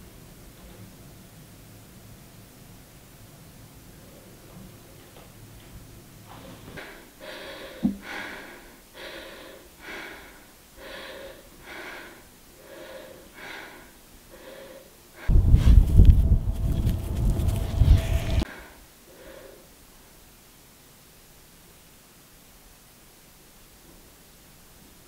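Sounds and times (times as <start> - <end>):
woman breathing heavily: 6.6 - 19.7
loud low rumbling: 15.3 - 18.5.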